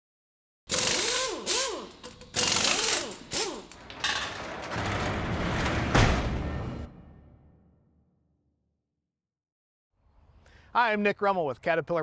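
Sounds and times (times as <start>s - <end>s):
power tool whirring: 0.7s - 3.8s.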